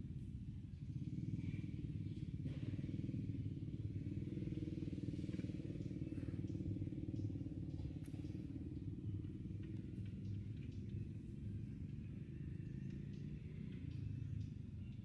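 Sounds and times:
engine running: 0.0s - 15.0s.

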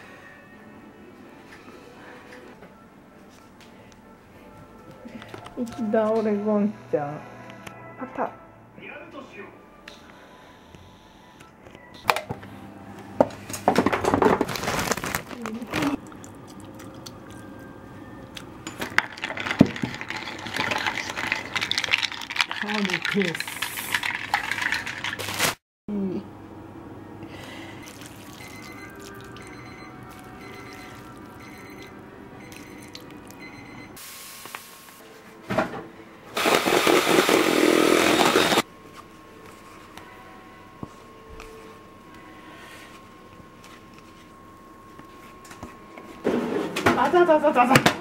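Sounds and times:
teaspoon stirring and clinking in mug: 18.7s - 25.2s
liquid pouring into mug: 19.1s - 25.2s
eggs beaten in metal bowl: 19.2s - 25.2s.

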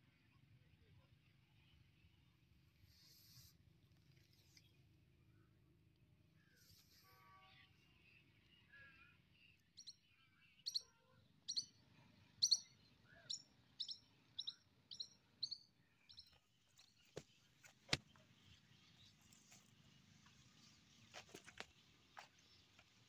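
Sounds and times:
bird chirping: 7.8s - 23.0s.

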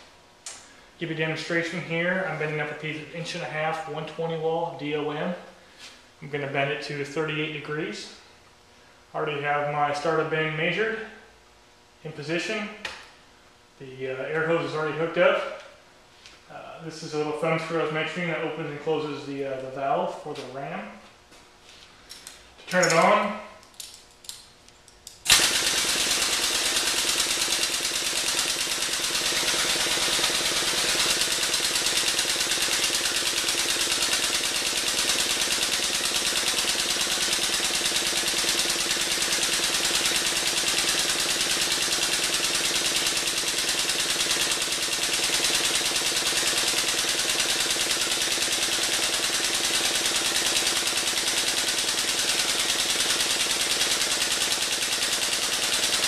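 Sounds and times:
hydraulic pump rattling buzz: 25.2s - 56.0s.

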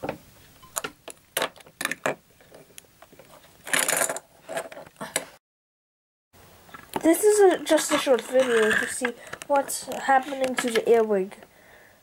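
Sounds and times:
plastic toy blocks clicking: 7.9s - 11.0s.

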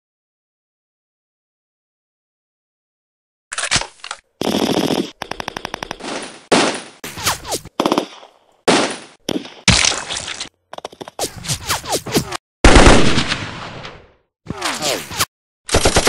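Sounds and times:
machine-gun rattle: 3.5s - 6.1s
gunfire bursts: 4.4s - 9.6s, 12.6s - 14.1s, 15.7s - 16.0s.

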